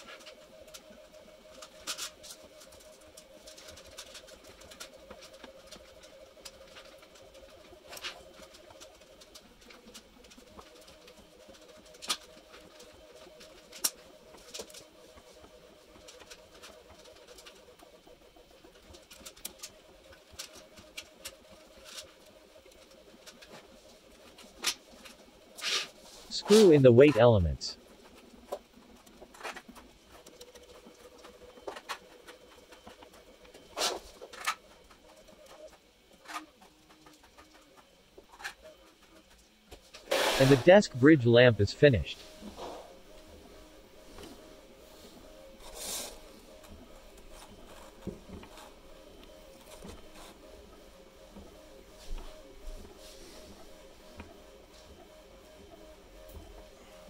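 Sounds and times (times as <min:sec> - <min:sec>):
faint steady hum: 0:19.2 - 0:57.0.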